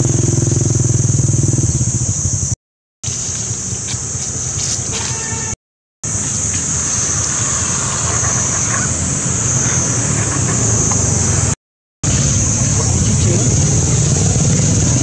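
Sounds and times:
high steady hiss: 3.1 - 15.0.

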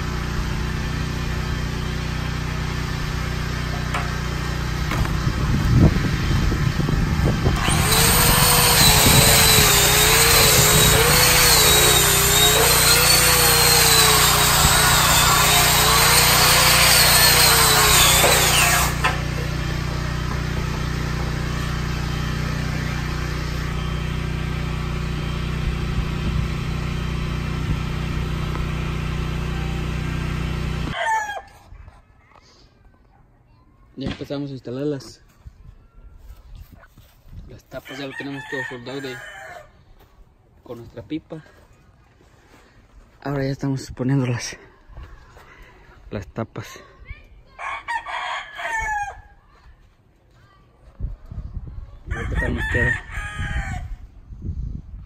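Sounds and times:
angle grinder on steel pipe: 7.3 - 24.6.

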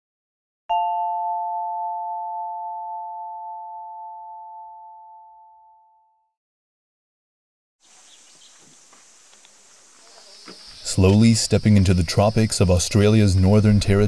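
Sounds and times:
struck bell chime: 0.7 - 6.0.

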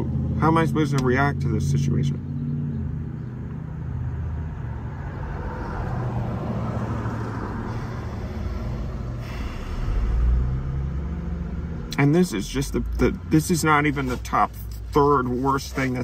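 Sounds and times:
car engine idling: 6.1 - 16.0.

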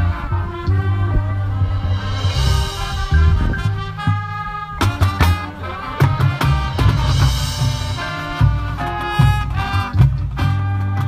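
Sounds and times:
brass band playing chords: 0.0 - 11.0
sharp drum hits: 1.6 - 10.4.

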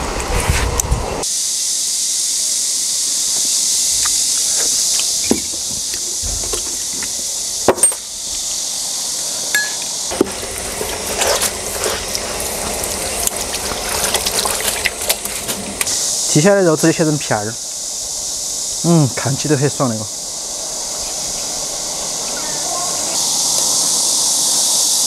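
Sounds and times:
steady high hiss: 0.0 - 25.0
crunching bites: 9.8 - 16.0.

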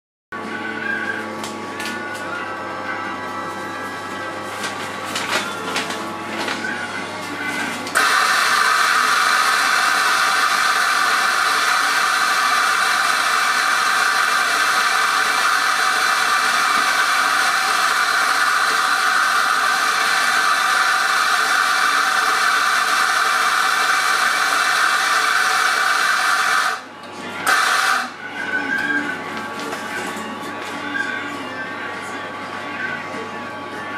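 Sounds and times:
electric coffee grinder running: 4.7 - 28.2.

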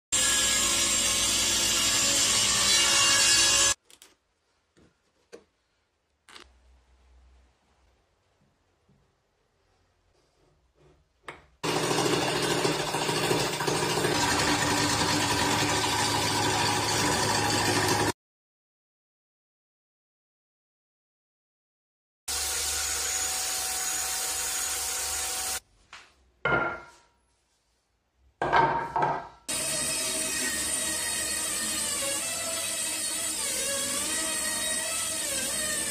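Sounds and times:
table saw cutting wood: 0.2 - 3.8, 11.6 - 18.2, 22.3 - 25.6, 29.5 - 35.9
lathe motor hum: 11.6 - 18.1
wooden leg knocking on workbench: 26.5 - 26.9.

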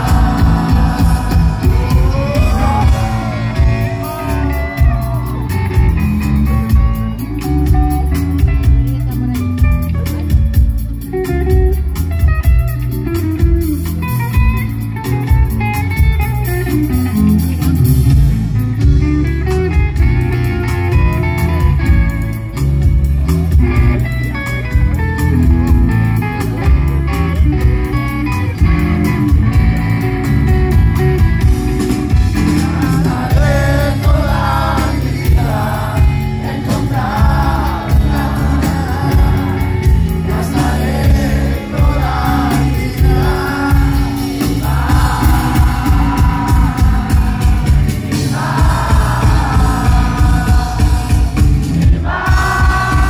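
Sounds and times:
person singing: 0.0 - 6.4, 32.4 - 53.0
bass guitar: 0.0 - 53.0
drums: 0.0 - 53.0
electric guitar: 0.0 - 53.0.

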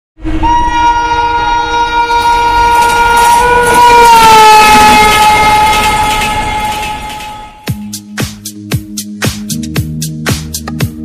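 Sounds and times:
train running noise: 0.2 - 7.9
locomotive horn blast: 0.3 - 7.8.

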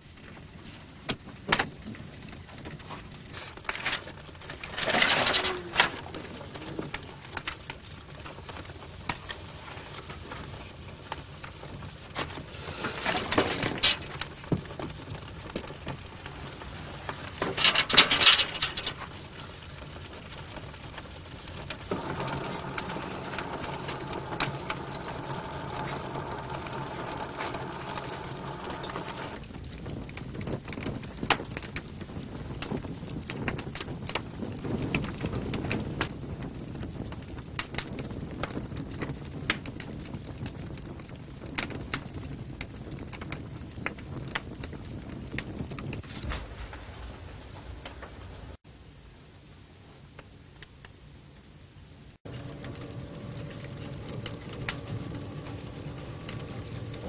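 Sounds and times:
rushes of flame: 0.0 - 48.6, 52.1 - 57.0
fire crackling: 0.0 - 57.0
steady low hum: 21.8 - 29.4, 52.3 - 57.0.

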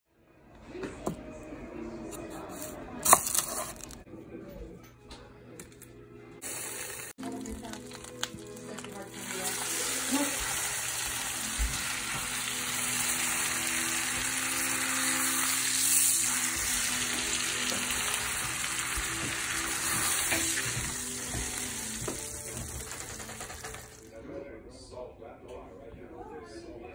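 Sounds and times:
steak sizzling in butter: 6.4 - 24.1.

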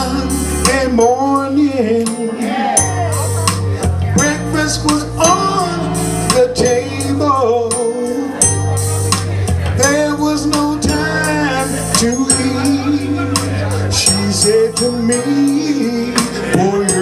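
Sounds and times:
men singing slow soul song: 0.0 - 3.2, 4.1 - 8.6, 9.7 - 17.0
backing band: 0.0 - 17.0.

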